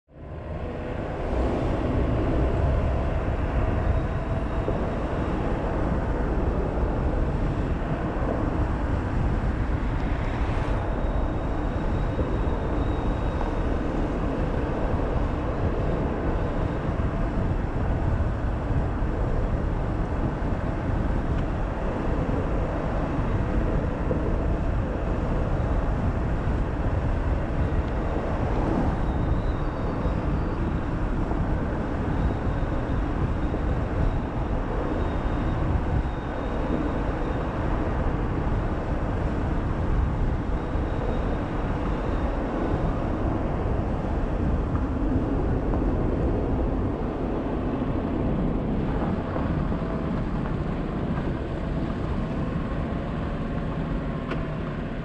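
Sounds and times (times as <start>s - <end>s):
wind buffeting microphone: 0.1s - 55.0s.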